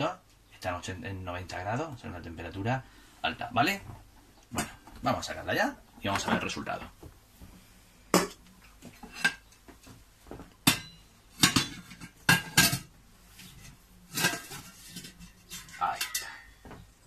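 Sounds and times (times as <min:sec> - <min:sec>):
pan lid and plate clanking: 0:10.7 - 0:12.9, 0:14.1 - 0:16.4.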